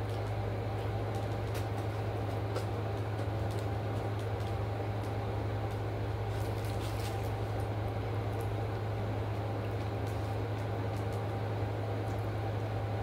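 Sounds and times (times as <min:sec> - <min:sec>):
low machine hum: 0:00.0 - 0:13.0
plastic wrappers rustling: 0:01.1 - 0:05.1, 0:06.3 - 0:07.7.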